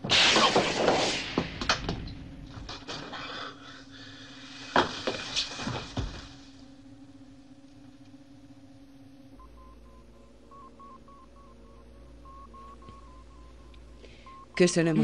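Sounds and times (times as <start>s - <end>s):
steady low hum: 0.0s - 15.0s
electronic bleeps: 9.3s - 15.0s.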